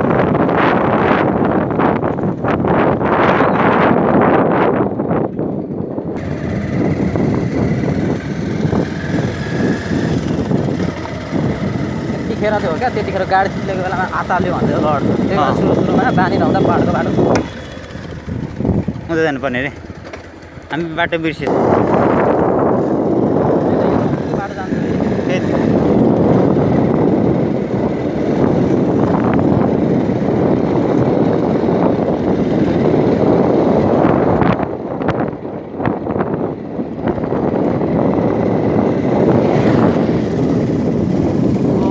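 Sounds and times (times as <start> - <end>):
motorcycle running: 0.0 - 41.9
wind buffeting microphone: 0.0 - 41.9
motorcycle engine on gravel: 6.2 - 12.3.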